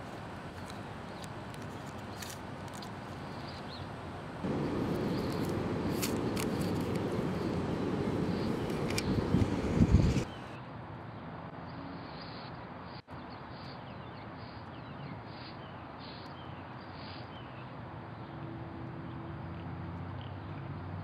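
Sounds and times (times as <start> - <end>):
outdoor background hiss: 0.0 - 20.0
small birds chirping: 0.5 - 10.6.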